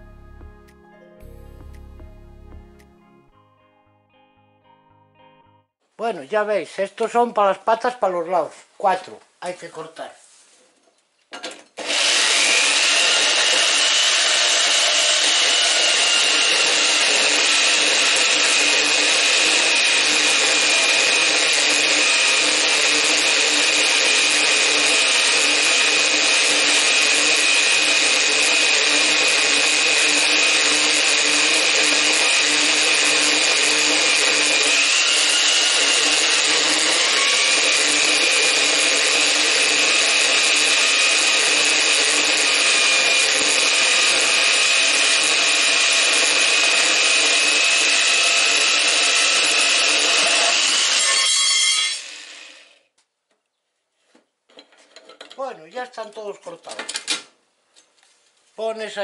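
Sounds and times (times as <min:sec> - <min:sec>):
band saw blade whine: 0:11.8 - 0:52.8.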